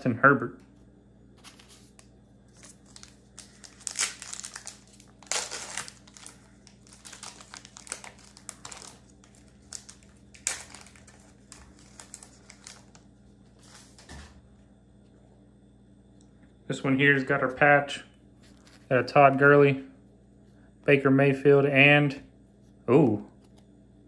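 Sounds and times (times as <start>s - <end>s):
foil wrapper crinkling and tearing: 1.4s - 14.1s.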